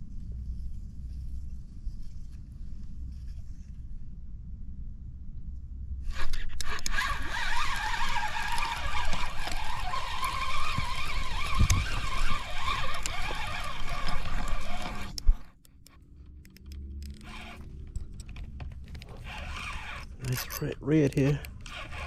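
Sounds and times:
fishing reel gears whirring: 0:06.1 - 0:15.6, 0:16.6 - 0:17.8, 0:19.2 - 0:22.0
reel clicks: 0:06.1 - 0:22.0.

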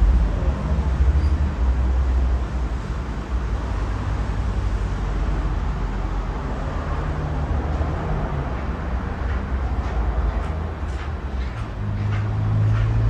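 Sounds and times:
air rushing from fan blades: 0:07.6 - 0:13.0.

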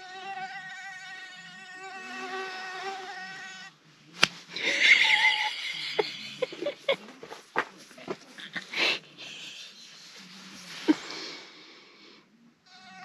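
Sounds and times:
mosquito whining: 0:00.0 - 0:03.7, 0:12.7 - 0:13.0.

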